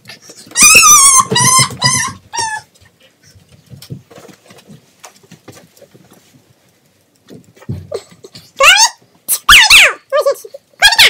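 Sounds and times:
small dog yelping whines: 0.5s - 2.7s, 8.6s - 10.1s, 10.8s - 11.0s.

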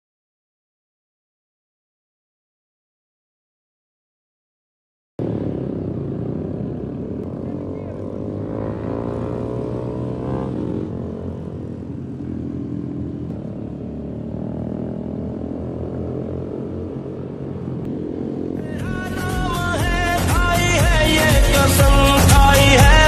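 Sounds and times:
small motorcycle engines: 5.2s - 23.0s.

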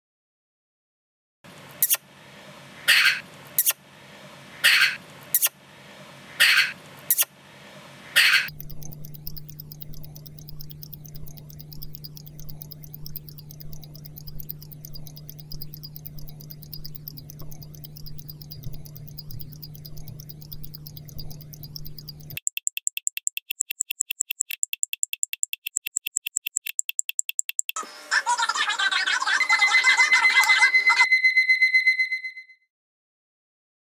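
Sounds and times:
low hum: 5.6s - 22.4s
mechanical wristwatch ticking: 6.3s - 7.3s, 8.2s - 27.8s.

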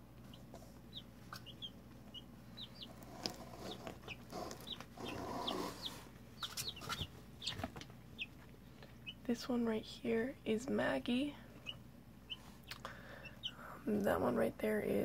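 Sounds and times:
chicks peeping: 0.1s - 14.3s
chicks pecking clicks: 0.2s - 9.2s, 11.6s - 14.1s.

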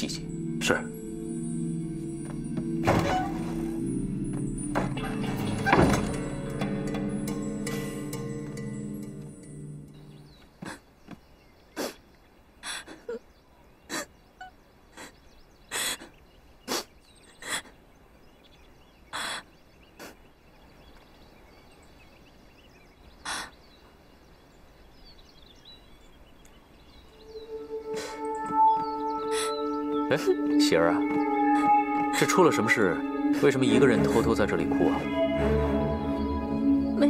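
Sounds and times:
woman crying with sniffs: 27.9s - 28.3s.

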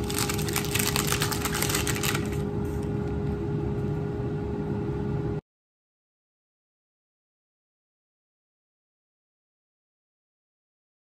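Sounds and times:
paper wrapping crinkling: 0.0s - 2.4s
air fryer humming: 0.0s - 5.4s.

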